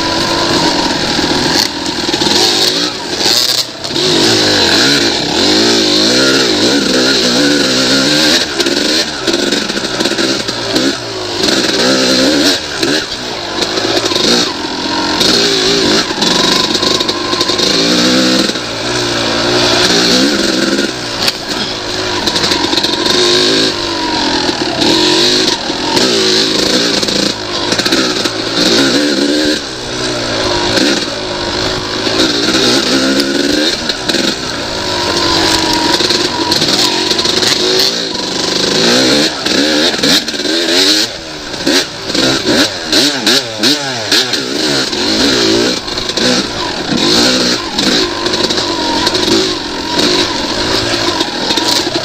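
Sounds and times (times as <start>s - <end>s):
dirt bike engine revving: 0.0s - 52.0s.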